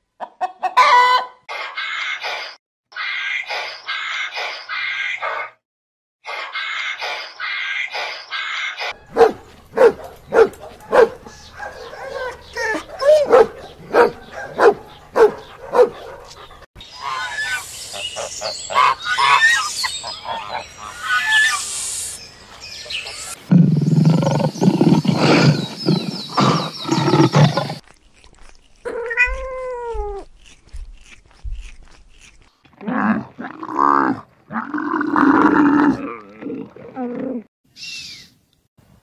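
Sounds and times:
dog barking deeply: 9.1s - 16.4s
cat meowing: 28.9s - 30.3s.

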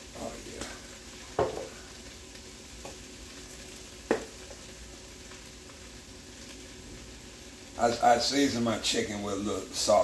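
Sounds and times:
faint sizzle: 0.0s - 10.0s
spoon knocking on pot: 1.4s - 1.7s, 4.1s - 4.4s.

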